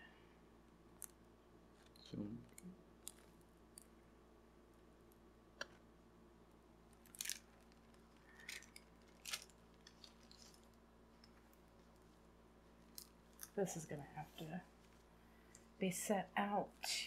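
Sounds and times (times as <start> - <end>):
low steady hum: 0.0 - 17.0
plastic film crinkling: 6.9 - 12.1.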